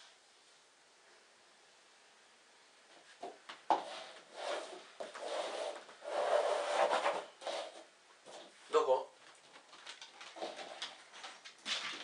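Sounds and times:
cups scraping on wooden floor: 0:03.7 - 0:08.6.

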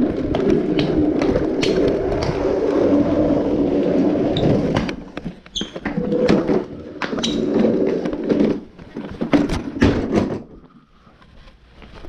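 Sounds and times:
short squeaks: 0:05.5 - 0:06.0.

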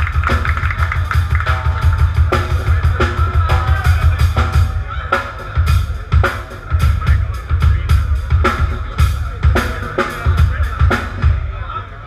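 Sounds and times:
bass guitar: 0:00.0 - 0:12.0
live band playing: 0:00.0 - 0:12.0.

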